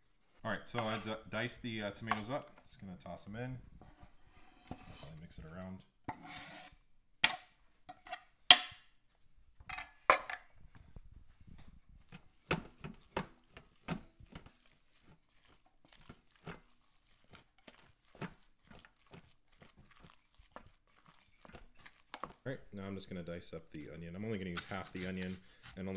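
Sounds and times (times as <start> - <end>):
spoon scraping and tapping crock: 12.1 - 22.4.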